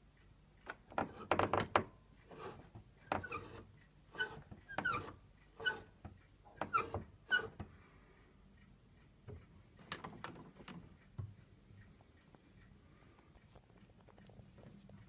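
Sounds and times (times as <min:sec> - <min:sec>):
wooden knee lever clicks and knocks: 0:00.6 - 0:02.0
short squeaks: 0:03.2 - 0:06.0, 0:06.6 - 0:07.6.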